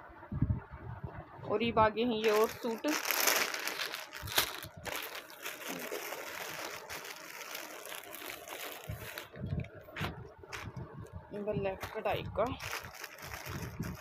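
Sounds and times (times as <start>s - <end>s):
plastic packaging rustling: 2.2s - 10.8s, 11.7s - 14.0s.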